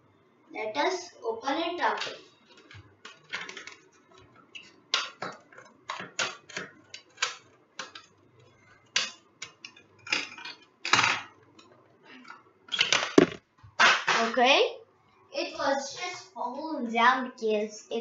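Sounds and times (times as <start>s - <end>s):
plastic crackling: 1.8s - 11.0s.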